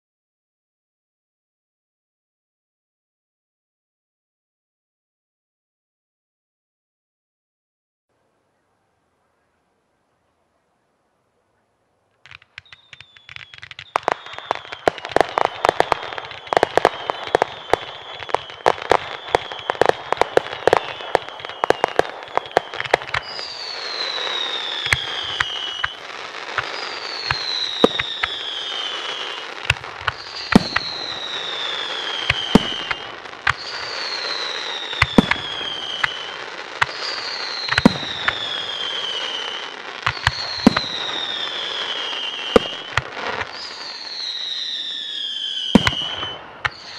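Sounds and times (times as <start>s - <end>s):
fireworks crackling and bangs: 12.2s - 46.9s
fireworks falling whistles: 12.2s - 46.9s.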